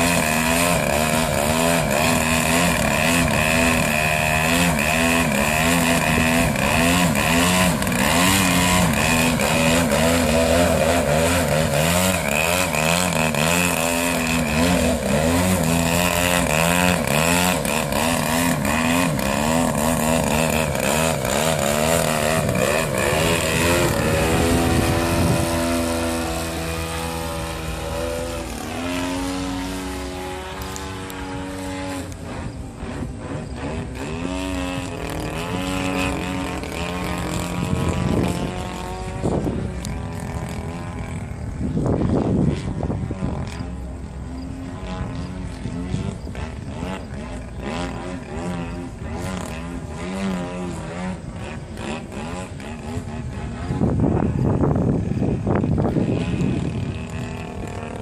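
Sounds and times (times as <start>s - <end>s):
model plane engine running hard: 0.0s - 58.0s.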